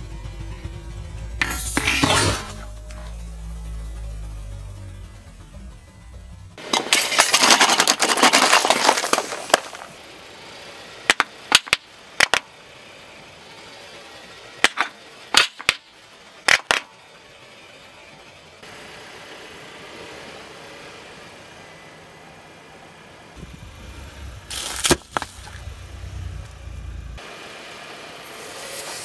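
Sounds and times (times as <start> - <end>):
crushed can hissing and fizzing: 6.7 - 10.0, 24.5 - 25.5.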